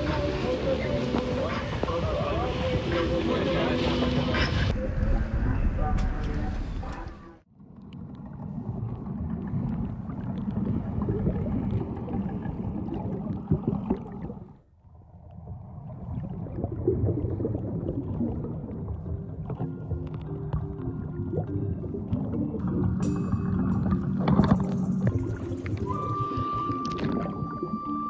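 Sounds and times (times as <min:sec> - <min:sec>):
music: 0:00.0 - 0:04.8, 0:18.8 - 0:28.0
muffled underwater rushing: 0:00.0 - 0:28.0
bubbling clicks: 0:07.7 - 0:14.6, 0:15.2 - 0:28.0.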